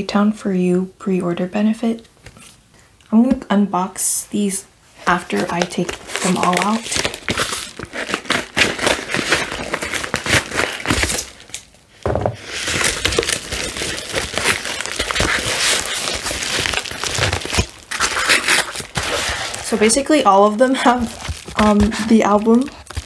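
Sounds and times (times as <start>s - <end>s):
envelopes rustling and crinkling: 4.9s - 23.0s.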